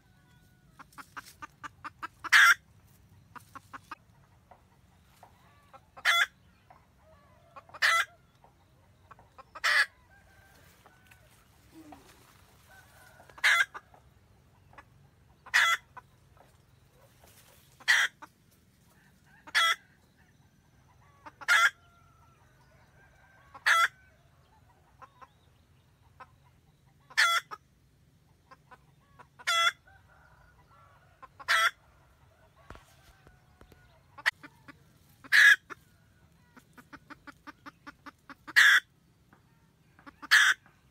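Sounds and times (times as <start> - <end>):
hen cackling: 0.0 - 2.7, 5.4 - 6.4, 7.0 - 8.2, 9.1 - 14.0, 14.7 - 16.1, 17.0 - 18.3, 19.2 - 19.9, 21.0 - 21.9, 23.5 - 24.0, 26.9 - 27.7, 28.5 - 30.0, 31.2 - 31.8, 34.1 - 38.9, 40.0 - 40.7
hen clucking: 0.0 - 40.9.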